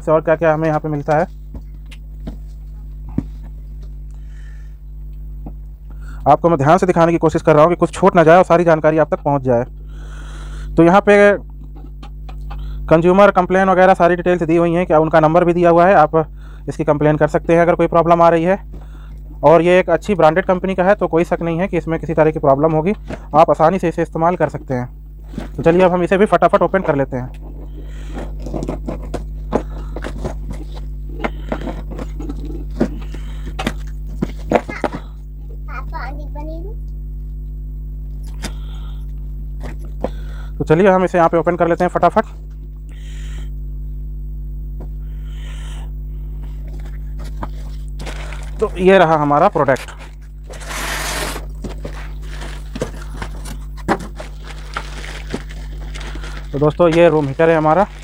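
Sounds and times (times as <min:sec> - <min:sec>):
steady low hum: 0:00.0 - 0:58.0
packaging rustling and scraping: 0:27.6 - 0:34.5, 0:46.8 - 0:48.9, 0:49.7 - 0:58.0
knife cutting cardboard: 0:50.5 - 0:52.1.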